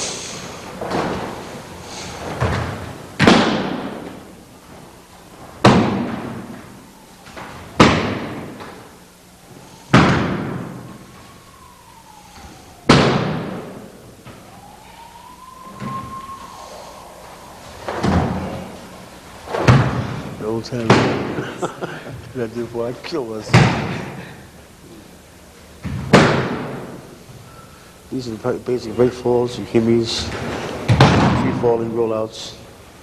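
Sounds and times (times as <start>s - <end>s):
people landing on a mat: 0.7s - 8.9s, 9.9s - 11.3s, 17.5s - 22.3s, 23.5s - 24.5s, 25.8s - 27.1s, 30.2s - 31.6s.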